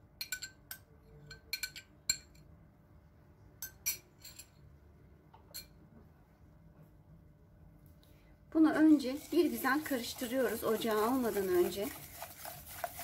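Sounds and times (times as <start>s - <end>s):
spoon clinking against glass bowl: 0.2s - 2.5s.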